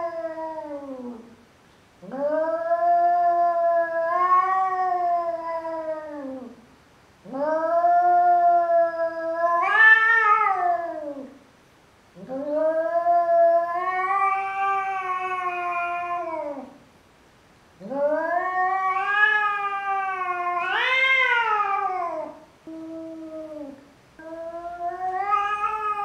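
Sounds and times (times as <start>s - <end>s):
cat yowling: 2.0s - 6.6s, 7.2s - 11.3s, 12.2s - 16.8s, 17.8s - 26.0s.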